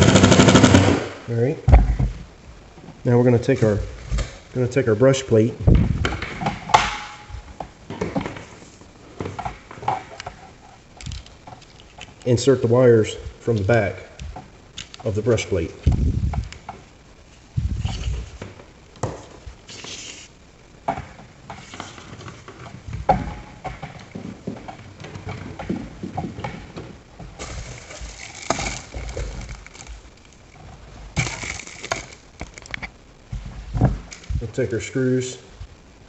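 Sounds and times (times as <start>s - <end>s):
plastic clicks and knocks: 11.0s - 12.3s.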